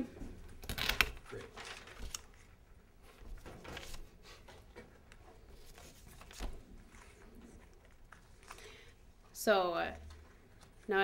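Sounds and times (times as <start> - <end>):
rustling of paper notes: 0.6 - 4.6, 5.4 - 9.1.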